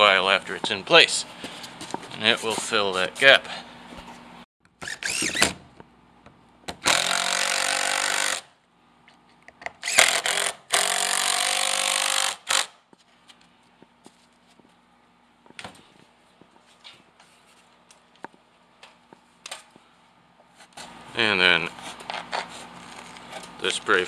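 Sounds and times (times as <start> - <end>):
cordless drill driving screws: 4.8 - 5.5, 6.8 - 8.5, 9.8 - 12.7.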